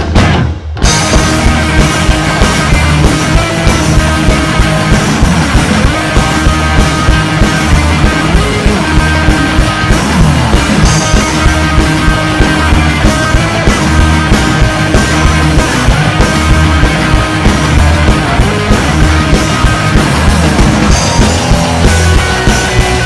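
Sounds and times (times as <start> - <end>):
drum kit: 0.0 - 23.0
electric bass: 0.0 - 23.0
electric guitar: 0.0 - 23.0.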